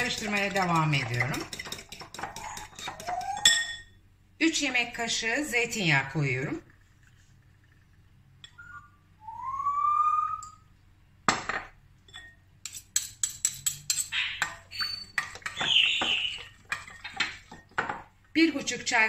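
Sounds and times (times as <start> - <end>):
utensil clinking against mixing bowl: 0.0 - 3.9, 12.1 - 18.1.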